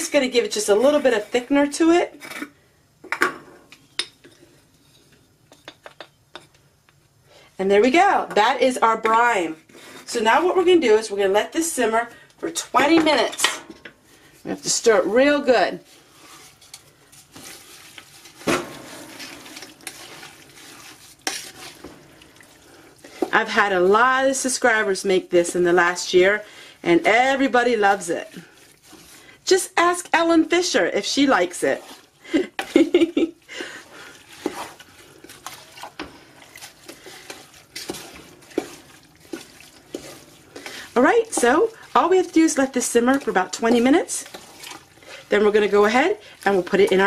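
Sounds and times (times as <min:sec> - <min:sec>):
wooden spoon stirring in pot: 0:00.0 - 0:02.5, 0:07.6 - 0:47.0
wet squishing and sloshing: 0:15.8 - 0:23.4, 0:28.2 - 0:29.4, 0:31.3 - 0:32.5, 0:33.4 - 0:47.0.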